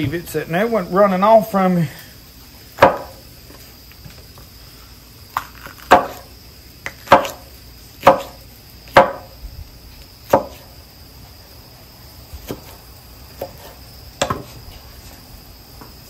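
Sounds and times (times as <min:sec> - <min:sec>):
insects trilling: 0:00.0 - 0:16.0
knife chopping on cutting board: 0:02.8 - 0:03.2, 0:05.9 - 0:06.3, 0:06.9 - 0:08.4, 0:09.0 - 0:09.3, 0:10.3 - 0:10.7, 0:13.4 - 0:14.5.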